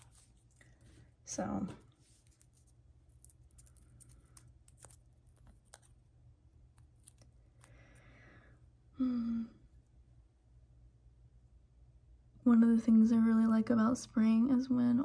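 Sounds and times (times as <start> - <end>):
fingers peeling nail strip: 3.1 - 6.0.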